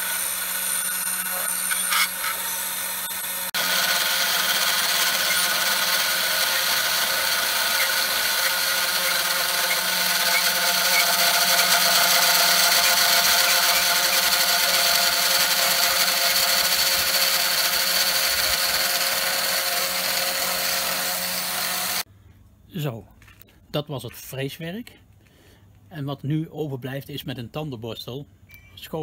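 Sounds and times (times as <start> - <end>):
router spindle whining: 0.0 - 22.1.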